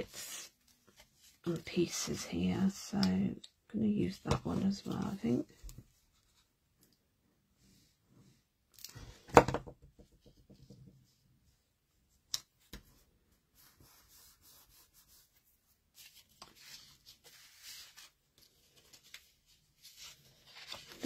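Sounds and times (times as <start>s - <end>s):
paper rustling: 13.6s - 21.0s.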